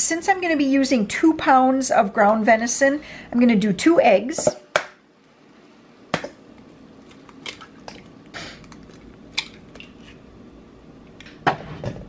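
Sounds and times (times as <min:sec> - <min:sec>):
eggshell crackling: 0:06.8 - 0:11.2
eggs cracked on metal bowl: 0:07.0 - 0:10.2.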